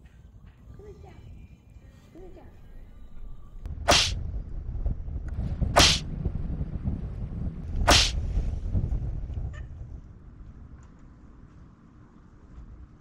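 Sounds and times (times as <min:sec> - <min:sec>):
low rumble: 0:02.8 - 0:11.3.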